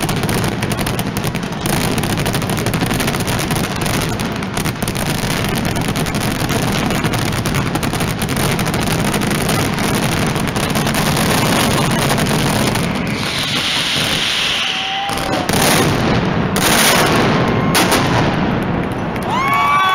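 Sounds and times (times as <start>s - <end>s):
firecracker barrage: 0.0s - 19.9s
crowd cheering: 10.6s - 16.0s, 17.0s - 19.9s.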